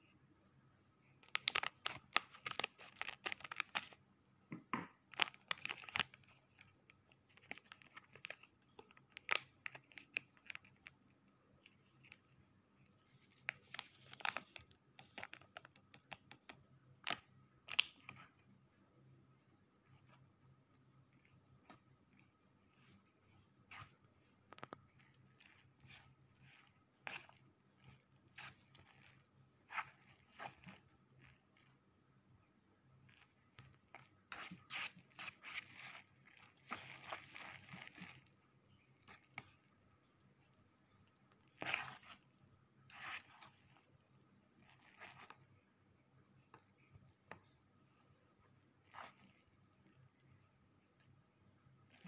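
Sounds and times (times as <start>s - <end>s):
sachet crinkling and tapping: 1.2s - 4.0s, 5.0s - 11.0s, 13.2s - 18.2s, 23.7s - 31.7s.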